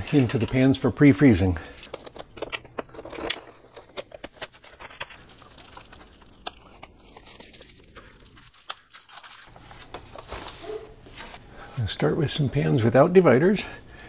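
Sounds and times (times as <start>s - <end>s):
foil lid crinkling: 1.9s - 11.4s.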